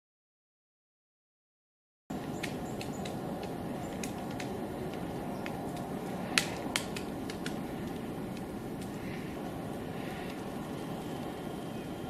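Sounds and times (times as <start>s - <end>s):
woodpecker tapping on bark: 2.1s - 9.4s
steady low background noise: 2.1s - 12.0s.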